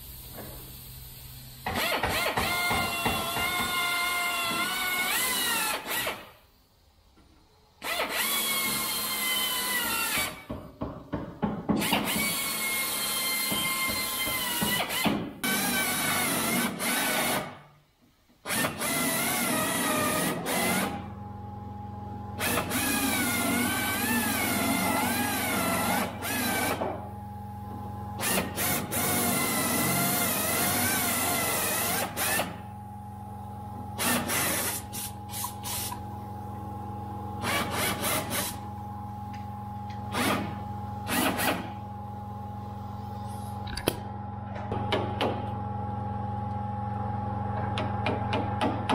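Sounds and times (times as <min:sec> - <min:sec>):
air drill whining: 0:01.5 - 0:06.4, 0:07.8 - 0:10.5, 0:11.7 - 0:17.6, 0:18.5 - 0:21.1, 0:22.4 - 0:27.0, 0:28.2 - 0:32.6, 0:34.0 - 0:36.0, 0:37.4 - 0:38.8, 0:39.9 - 0:41.8
steady low hum: 0:19.8 - 0:48.9.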